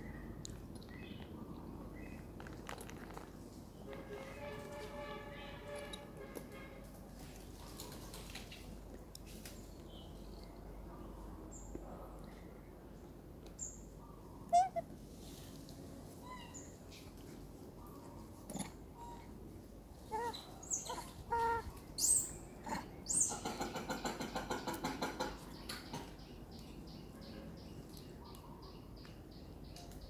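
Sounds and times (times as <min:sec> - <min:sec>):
birds chirping: 0:20.0 - 0:30.0.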